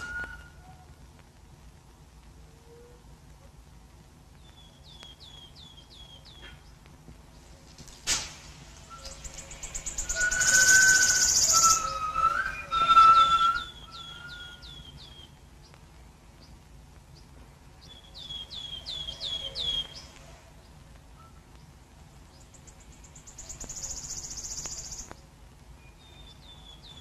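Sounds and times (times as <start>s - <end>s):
whistled calls: 0.0s - 0.8s, 8.8s - 15.4s, 17.9s - 20.2s, 23.2s - 25.1s
bird chirping: 4.4s - 6.8s, 8.9s - 15.8s, 17.2s - 21.7s, 22.3s - 25.2s, 25.8s - 27.0s
sharp snap: 7.9s - 8.6s.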